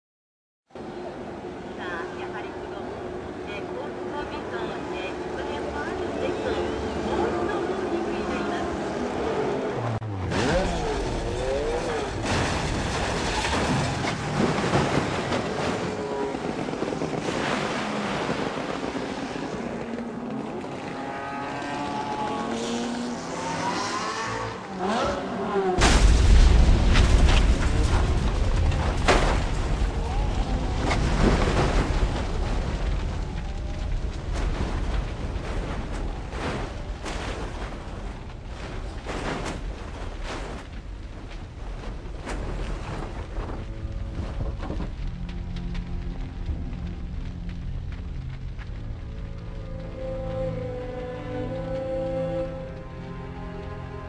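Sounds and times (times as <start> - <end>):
race car engines passing: 18.8 - 25.8
sudden bang: 25.8 - 32.3.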